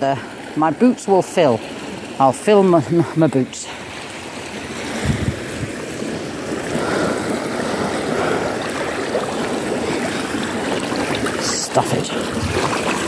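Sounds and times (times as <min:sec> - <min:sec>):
river rushing over stones: 0:00.0 - 0:13.0.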